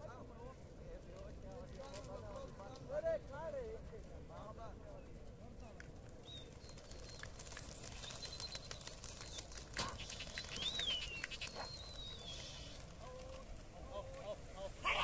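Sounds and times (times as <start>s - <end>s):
pigeon wings flapping: 1.1s - 4.3s, 5.2s - 14.4s
high whistle-like bird calls: 10.0s - 12.8s.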